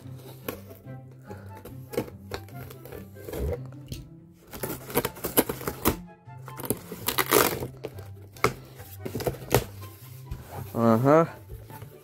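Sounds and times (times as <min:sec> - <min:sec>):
tape and cardboard crackling: 0:01.6 - 0:10.7.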